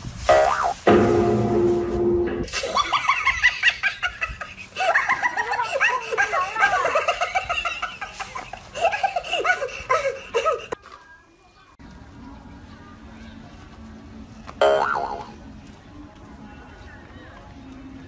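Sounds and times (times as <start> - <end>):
high-pitched laughter: 2.5 - 10.8.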